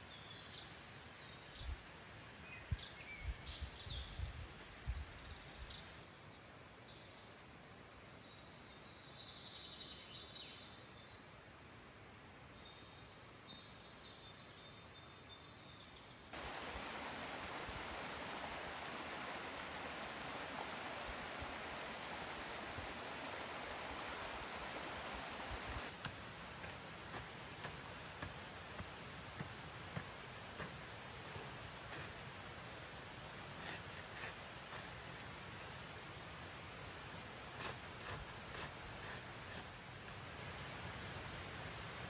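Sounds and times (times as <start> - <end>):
small waterfall trickling: 16.3 - 42.0.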